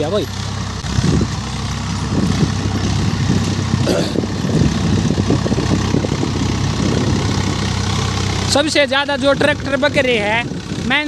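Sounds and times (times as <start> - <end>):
tractor diesel engine under load: 0.0 - 11.0.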